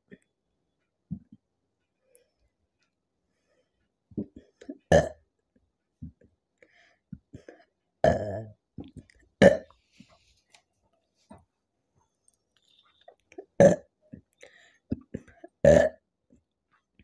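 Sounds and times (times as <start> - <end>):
woman burping: 4.8 - 5.2, 8.0 - 8.5, 9.4 - 9.7, 13.5 - 13.9, 15.5 - 16.0.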